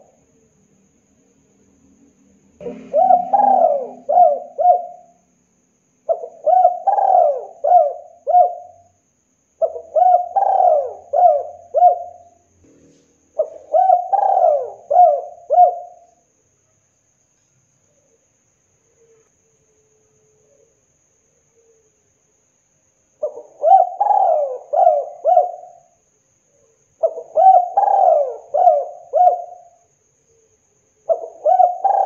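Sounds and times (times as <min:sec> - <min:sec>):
dove cooing: 0:02.6 - 0:05.2, 0:06.1 - 0:08.9, 0:09.6 - 0:12.4, 0:13.4 - 0:16.1, 0:23.2 - 0:25.9, 0:27.0 - 0:29.8, 0:31.1 - 0:32.0.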